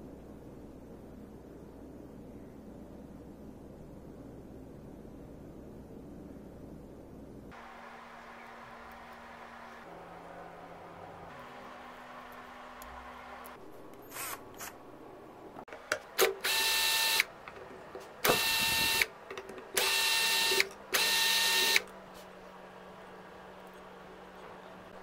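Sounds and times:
power drill motor whine: 16.4s - 17.3s, 18.2s - 19.1s, 19.8s - 21.8s.

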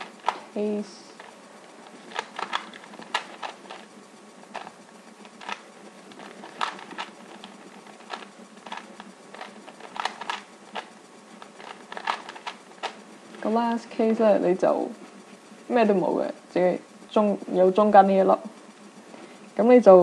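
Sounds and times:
puzzle cube clicking: 0.0s - 0.5s, 1.2s - 3.9s, 4.5s - 13.0s.

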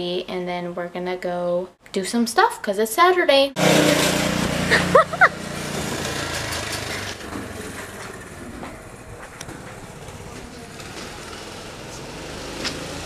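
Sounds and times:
tyre and road noise: 3.6s - 13.0s
vehicle engine hum: 3.6s - 13.0s.

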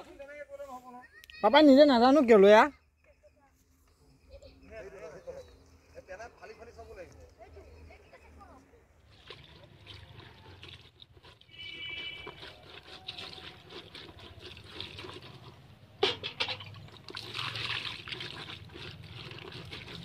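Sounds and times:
water splashing and trickling: 8.9s - 20.0s.

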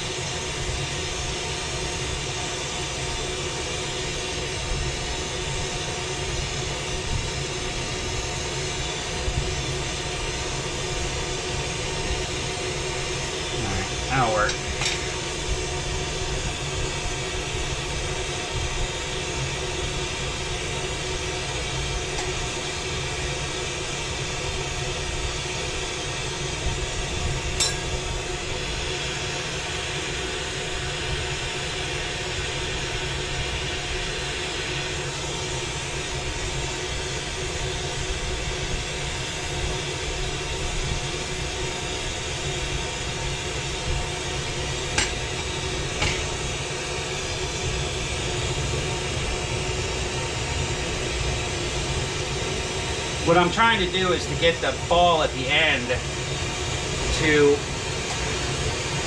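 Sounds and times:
torch flame hissing: 9.4s - 25.7s, 42.5s - 59.0s.

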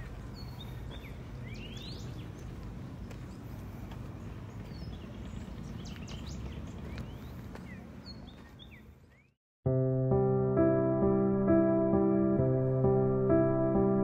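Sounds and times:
birds chirping and whistling: 0.3s - 2.5s, 4.6s - 9.3s.

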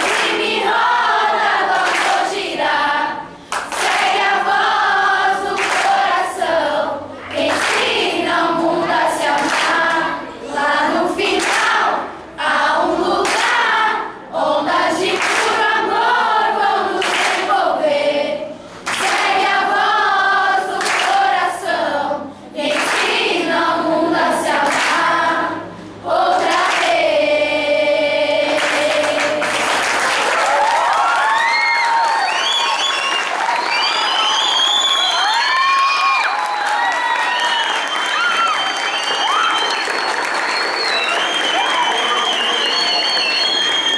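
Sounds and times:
children's choir singing: 0.0s - 30.4s.

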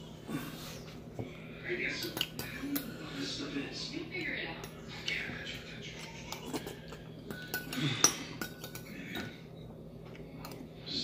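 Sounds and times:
spoon clinking against soup bowl: 6.3s - 8.9s.

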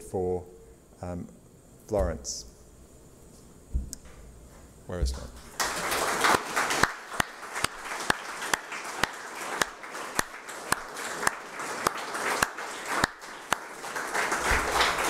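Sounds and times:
close hand claps: 5.4s - 15.0s
audience applause: 5.5s - 15.0s.

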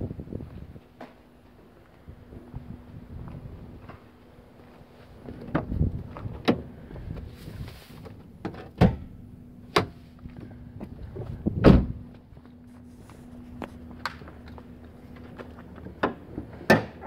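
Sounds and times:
car door closing thud: 11.6s - 12.0s.

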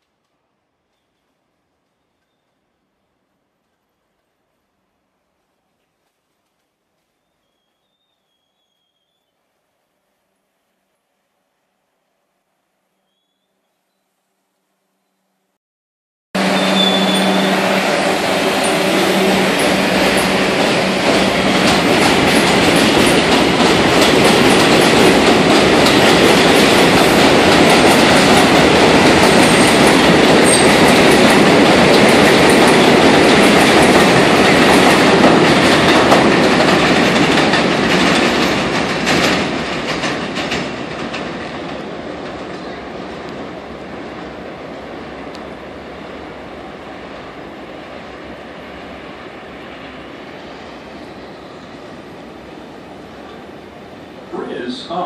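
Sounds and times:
subway train wheels clattering: 16.4s - 55.0s
train motors humming: 16.4s - 55.0s.

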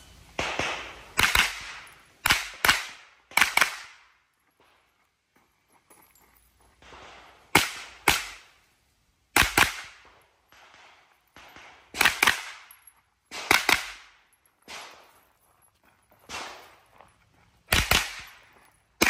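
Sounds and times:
gunshots in pairs: 0.4s - 4.2s, 6.8s - 8.5s, 9.3s - 12.7s, 13.3s - 15.1s, 16.3s - 16.8s, 17.7s - 18.4s.

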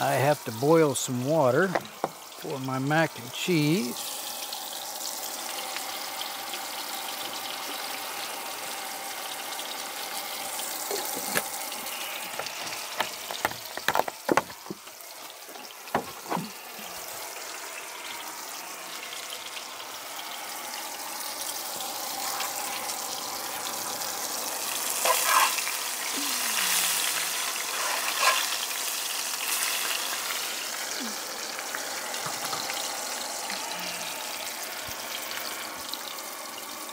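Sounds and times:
fish sizzling in a skillet: 0.0s - 36.9s
sharp clicks and knocks: 12.3s - 15.0s.

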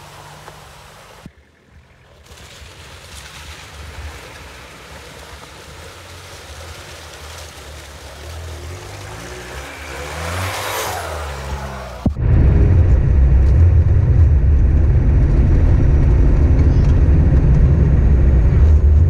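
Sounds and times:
water splashing: 0.0s - 12.2s
vehicle interior road drone: 0.0s - 19.0s
vehicle engine revving: 3.6s - 19.0s.

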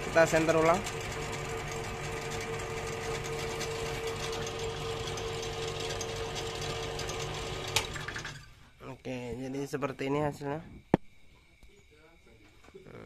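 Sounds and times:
lathe motor hum: 0.0s - 8.4s.

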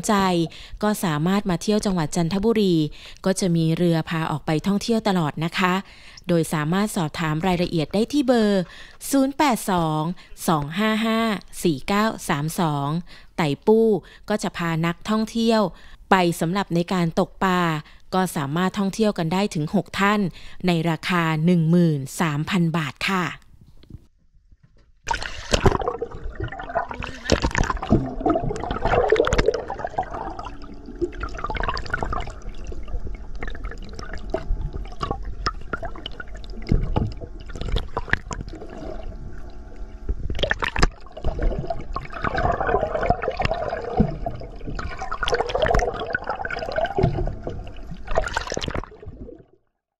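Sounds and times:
water sloshing and gurgling: 24.3s - 49.7s
bubbling: 25.0s - 49.6s.

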